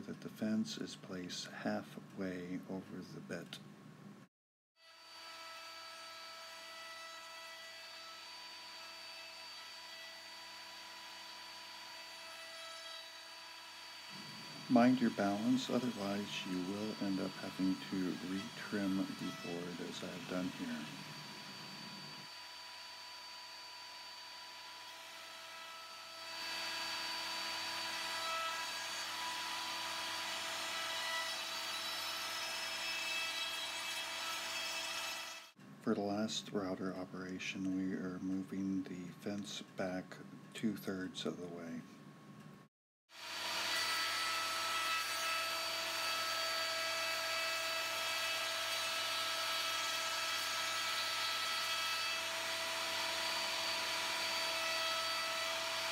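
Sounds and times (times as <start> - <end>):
router bit cutting wood: 4.8 - 35.5, 43.1 - 55.9
router whining: 4.9 - 35.5, 43.2 - 55.9.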